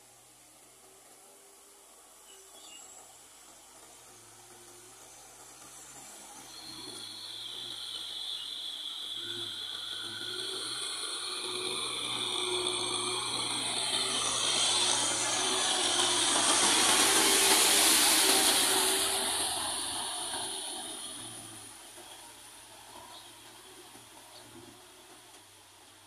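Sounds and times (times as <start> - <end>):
tractor engine and rotary tiller: 0.0 - 26.0.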